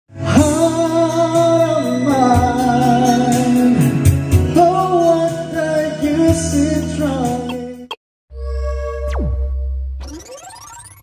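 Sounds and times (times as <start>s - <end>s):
karaoke song through speakers: 0.1s - 8.0s.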